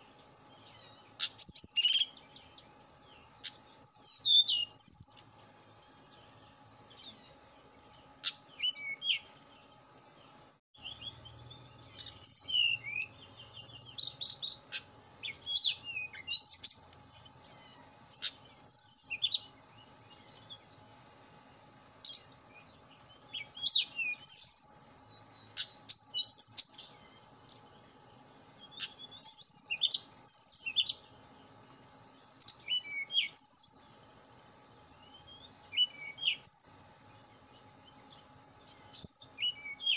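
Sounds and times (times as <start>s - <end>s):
bird whistling and trilling: 0.7s - 2.2s, 3.4s - 5.2s, 8.2s - 9.3s, 10.8s - 17.6s, 18.2s - 19.4s, 23.3s - 24.7s, 25.4s - 26.9s, 28.7s - 31.0s, 32.4s - 33.8s, 35.2s - 36.8s, 38.9s - 39.9s.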